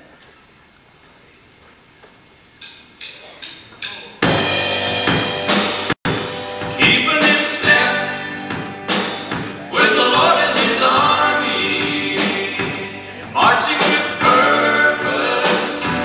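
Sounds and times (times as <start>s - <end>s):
gospel band playing: 3.4s - 16.0s
men singing: 6.8s - 8.7s, 9.5s - 16.0s.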